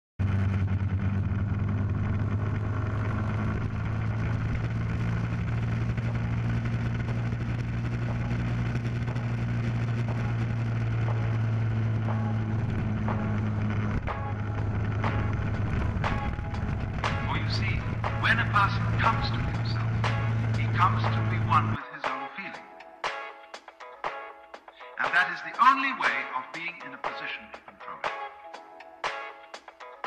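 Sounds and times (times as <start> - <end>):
motorcycle engine running: 0.2 - 21.8
wind noise: 12.5 - 18.0.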